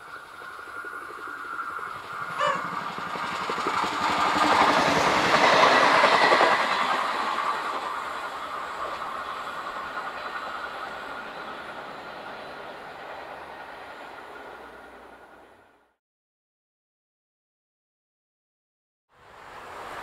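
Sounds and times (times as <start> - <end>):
wheels clicking over rail joints: 0.0 - 11.9
passenger train passing: 0.0 - 16.0, 19.2 - 20.0.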